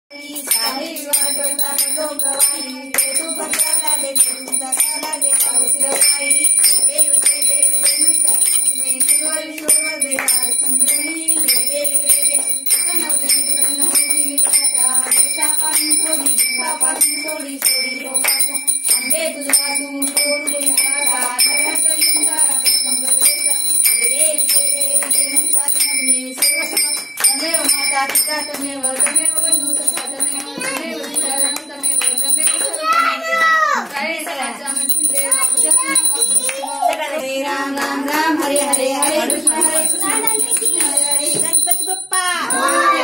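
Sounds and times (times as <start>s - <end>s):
group singing a hymn: 0.2s - 32.6s, 36.7s - 39.8s
bell ringing: 0.3s - 33.5s, 34.3s - 37.2s, 38.4s - 43.0s.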